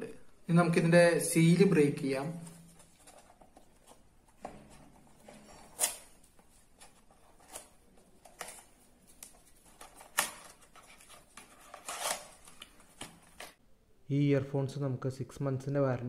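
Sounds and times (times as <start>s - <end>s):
paper rustling: 2.4s - 13.6s.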